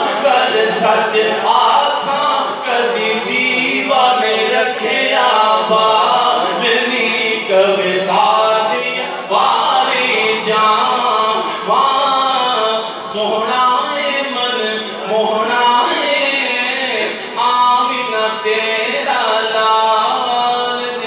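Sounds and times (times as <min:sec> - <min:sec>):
man singing devotional song: 0:00.0 - 0:21.0.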